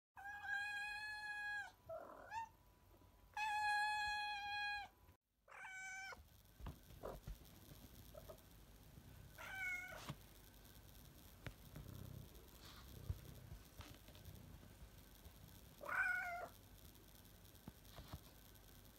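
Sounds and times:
cat meowing: 5.5 - 6.2, 15.8 - 16.5.

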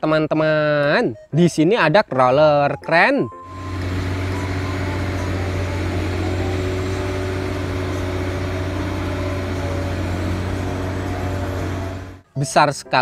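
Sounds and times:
heavy diesel engine humming: 3.4 - 12.2.

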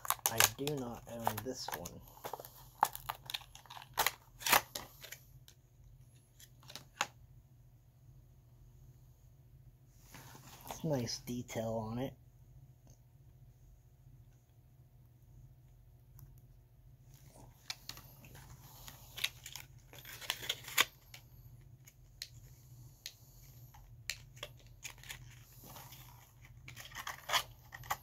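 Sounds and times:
package clicks taps and rustles: 0.0 - 5.2.

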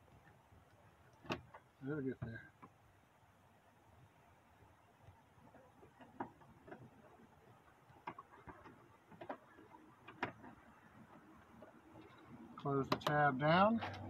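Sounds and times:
faint plastic clicks and taps: 5.0 - 13.2.

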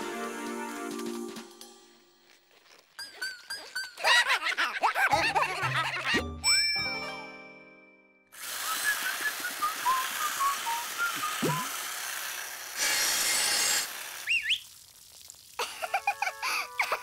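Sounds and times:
cartoon chainsaw cutting hedge: 8.3 - 14.6
rising whistle: 8.6 - 11.7
whistled chirps: 8.6 - 11.7, 14.2 - 14.7.

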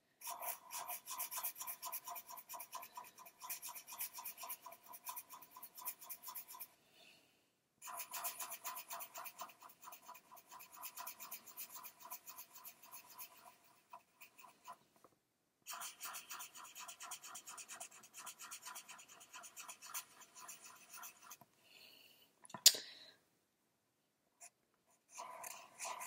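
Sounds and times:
marker scratching on card: 0.2 - 6.8, 7.8 - 14.8, 15.7 - 21.4, 24.4 - 26.0.

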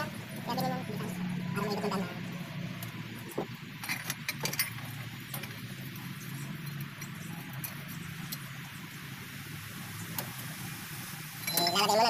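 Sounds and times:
metal tools clinking: 3.8 - 8.4, 11.4 - 11.9.

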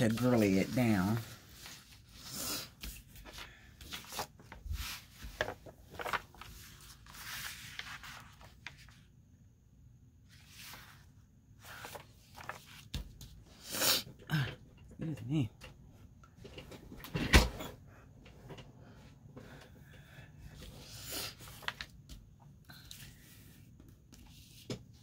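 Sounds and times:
paper sheets rustling: 0.0 - 9.1, 10.3 - 13.4, 20.6 - 23.6.

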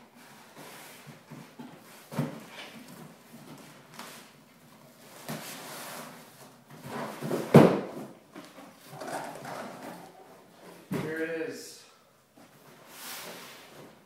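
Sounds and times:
cardboard thump: 7.2 - 8.1.

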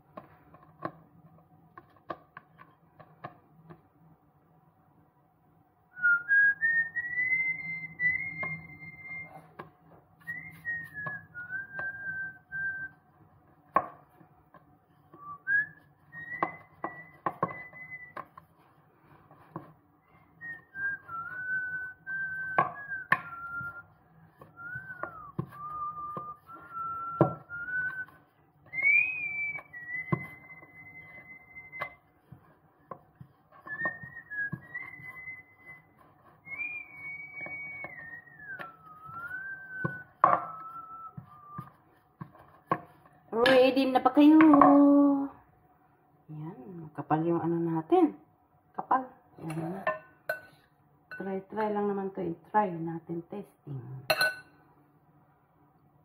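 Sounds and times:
person whistling a slow tune: 5.9 - 13.0, 15.1 - 18.4, 20.0 - 32.1, 33.5 - 42.0
rolling pin knocking on board: 39.8 - 40.6.

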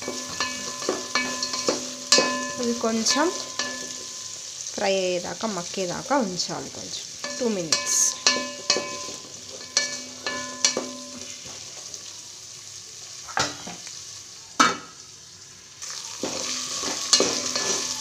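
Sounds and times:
spatula scraping and knocking pot: 0.0 - 4.2, 7.2 - 11.5, 16.2 - 18.0
vegetables sizzling in oil: 0.0 - 18.0.

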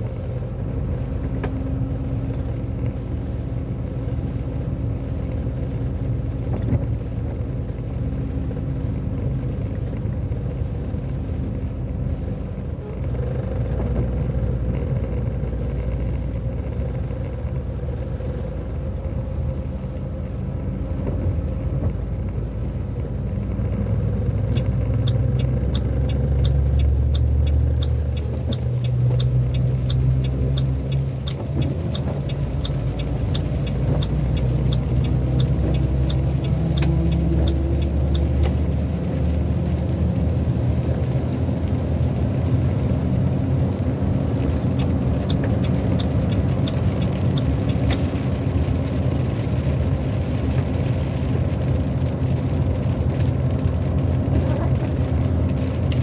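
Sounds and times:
road noise: 0.0 - 56.0
truck engine droning: 0.0 - 56.0
turn signal ticking: 0.0 - 56.0.

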